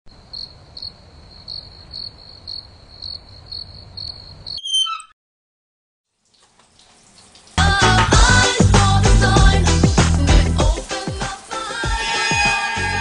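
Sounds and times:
crickets chirping: 0.1s - 4.8s
tap handle squeaking: 4.6s - 5.1s.

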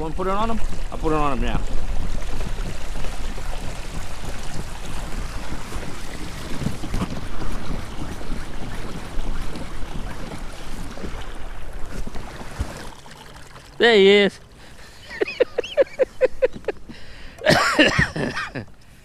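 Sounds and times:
wind buffeting microphone: 0.0s - 13.0s
water rushing along hull: 0.0s - 19.0s.

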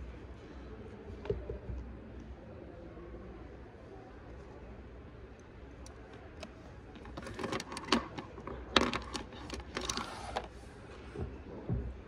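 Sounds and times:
plastic pens clicking and tapping: 6.4s - 10.5s
paper sliding: 9.8s - 10.6s.

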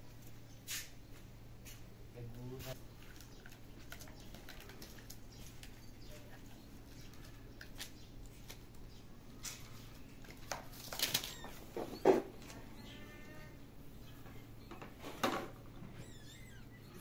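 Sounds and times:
claws scrabbling on plastic and concrete: 2.7s - 12.7s.

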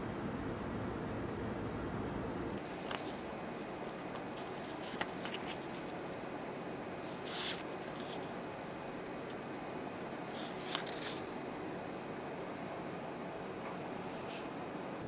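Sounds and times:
low room noise: 0.0s - 15.0s
plastic sticker sheets rustling: 2.6s - 6.2s, 7.1s - 8.3s, 10.3s - 11.4s.

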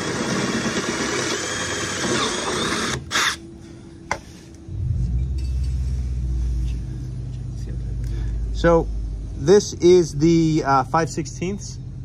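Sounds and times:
cordless drill drilling sheet metal: 0.0s - 3.4s
drill click: 0.0s - 3.4s
low engine rumble: 3.4s - 12.0s.

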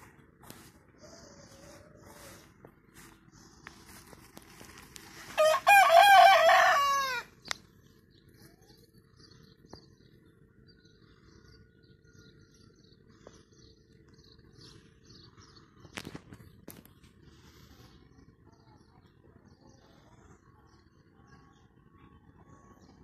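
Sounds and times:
rooster crowing: 5.3s - 7.3s.

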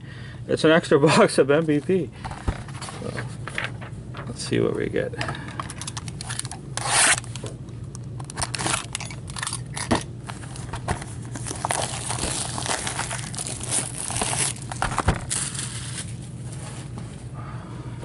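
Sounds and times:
cellophane wrap crinkling: 8.2s - 17.0s.

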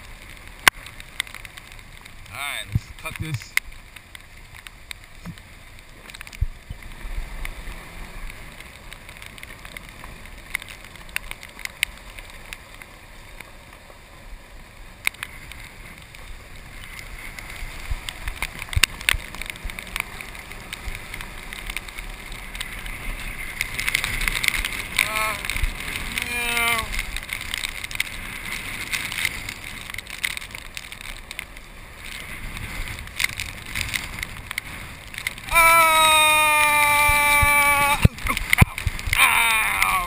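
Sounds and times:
tyres hissing through water: 24.8s - 27.2s, 35.4s - 40.0s.

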